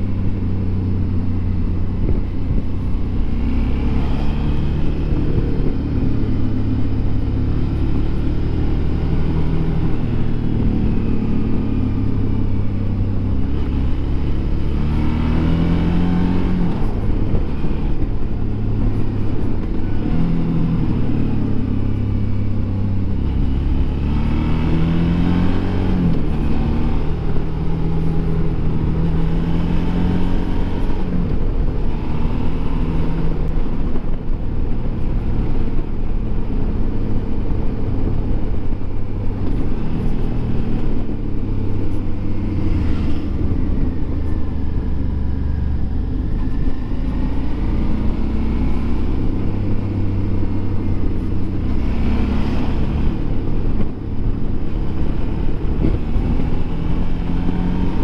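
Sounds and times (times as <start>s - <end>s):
motorcycle engine revving: 0.0s - 58.0s
wind rumble on microphone: 0.0s - 58.0s.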